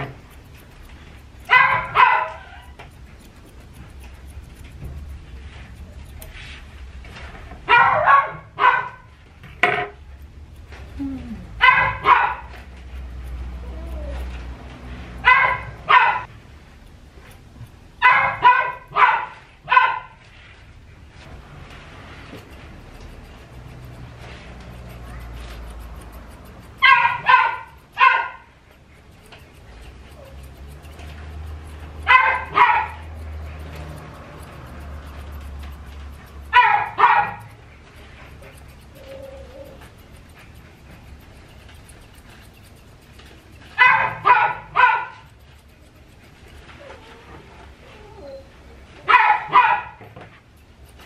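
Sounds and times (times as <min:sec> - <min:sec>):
dog barking: 0:01.4 - 0:02.8, 0:07.7 - 0:09.1, 0:11.6 - 0:12.6, 0:15.2 - 0:16.3, 0:18.0 - 0:20.2, 0:26.7 - 0:28.5, 0:32.0 - 0:33.6, 0:36.5 - 0:37.6, 0:43.8 - 0:45.3, 0:49.0 - 0:50.1.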